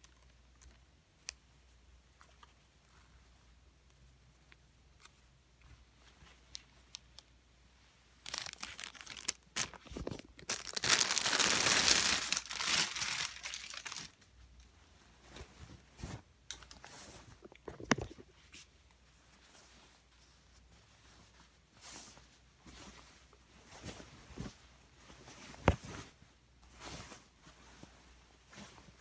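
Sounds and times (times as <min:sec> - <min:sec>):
crinkling and tearing: 0:08.2 - 0:14.2.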